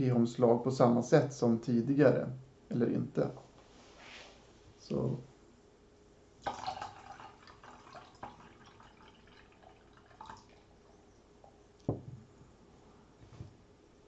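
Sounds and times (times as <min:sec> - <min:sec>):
liquid pouring into saucepan: 0:06.4 - 0:10.7
glass knocking on table: 0:11.9 - 0:12.2.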